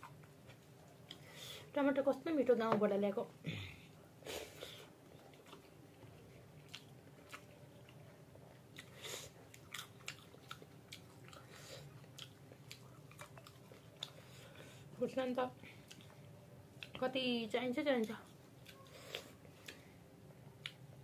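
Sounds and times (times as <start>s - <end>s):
chewing and biting food: 5.1s - 14.5s.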